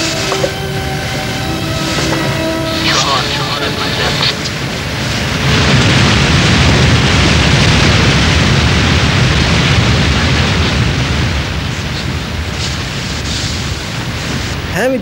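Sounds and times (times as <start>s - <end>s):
loud steady rushing noise: 0.0s - 15.0s.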